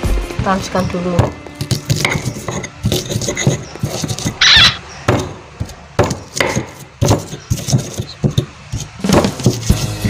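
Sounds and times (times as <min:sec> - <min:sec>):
stone pestle grinding in mortar: 0:01.4 - 0:10.0
stone scraping on stone: 0:01.6 - 0:04.8.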